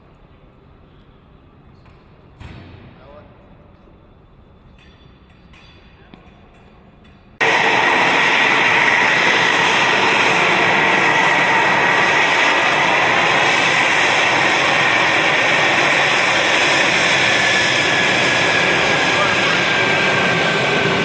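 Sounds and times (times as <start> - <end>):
jet engines rushing and whining: 7.4 - 21.0.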